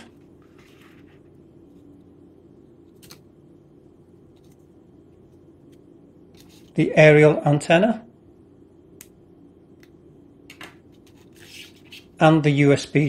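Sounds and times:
low room hum: 0:00.0 - 0:13.0
paper leaflet rustling: 0:00.4 - 0:01.3.

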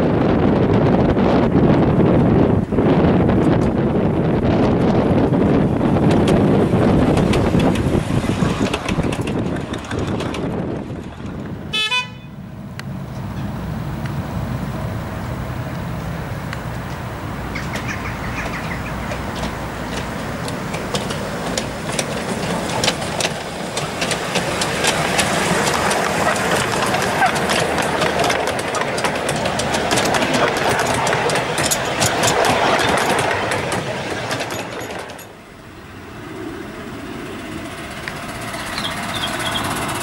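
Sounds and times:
miniature train rumbling: 0:00.0 - 0:40.0
wheels clicking on rails: 0:01.6 - 0:11.7, 0:15.1 - 0:35.6, 0:37.0 - 0:40.0
train horn toot: 0:11.7 - 0:12.4.

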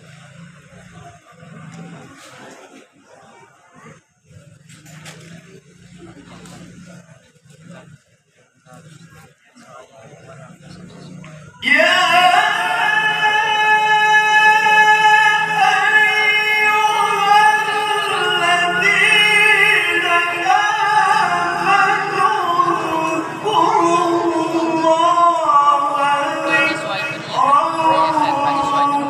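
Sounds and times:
man chanting into a microphone: 0:11.6 - 0:29.0.

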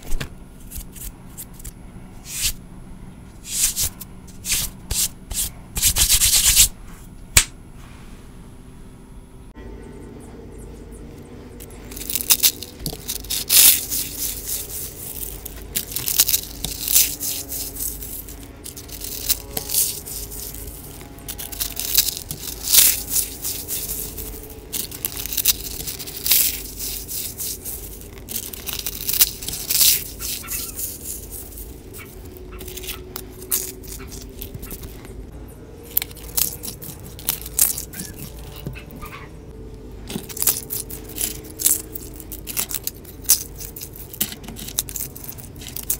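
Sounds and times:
dried leaves crushed in hands: 0:11.6 - 0:35.2, 0:35.8 - 0:39.1, 0:40.0 - 0:45.9.

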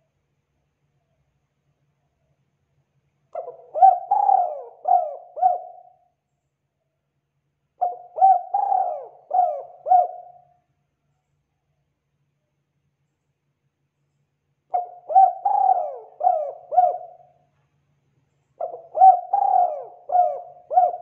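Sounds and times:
dove cooing: 0:03.4 - 0:06.1, 0:07.8 - 0:10.5, 0:14.7 - 0:17.4, 0:18.6 - 0:21.0.

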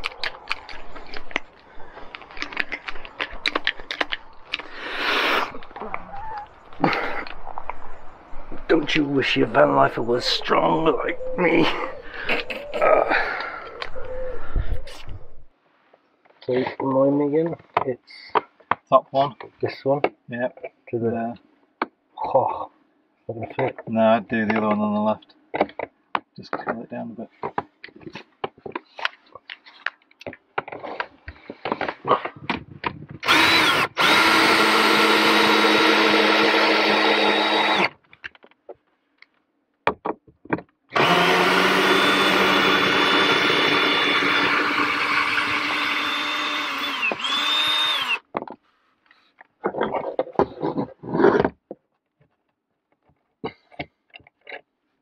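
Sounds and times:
handling clicks and knocks: 0:00.0 - 0:04.7, 0:25.5 - 0:33.2, 0:38.0 - 0:40.9
cordless drill whining: 0:33.2 - 0:38.0, 0:40.9 - 0:48.3.

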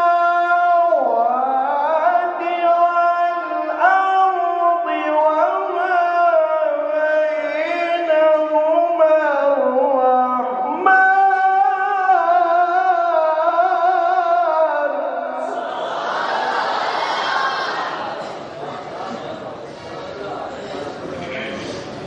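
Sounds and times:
man chanting into microphone: 0:00.0 - 0:15.6.

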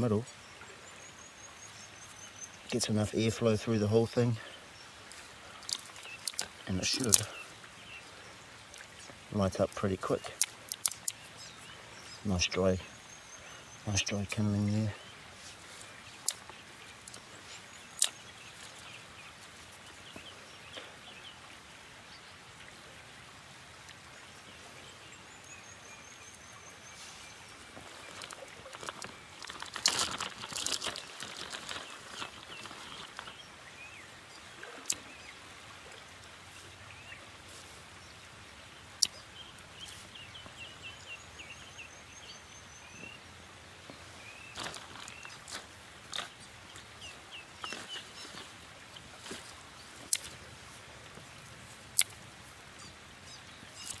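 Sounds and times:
birds chirping: 0:00.0 - 0:22.4, 0:23.8 - 0:54.0
outdoor background: 0:00.0 - 0:54.0
dry twigs rustling and clattering: 0:05.1 - 0:07.4, 0:27.7 - 0:33.4, 0:44.5 - 0:46.9, 0:47.6 - 0:50.4.

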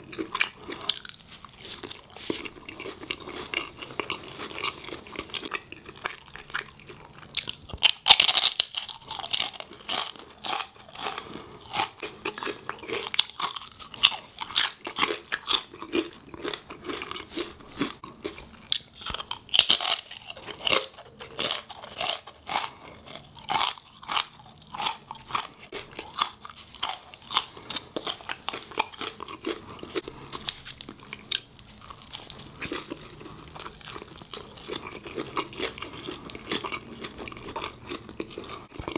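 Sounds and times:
chewing: 0:00.0 - 0:38.9
crunching bites: 0:00.2 - 0:38.9.

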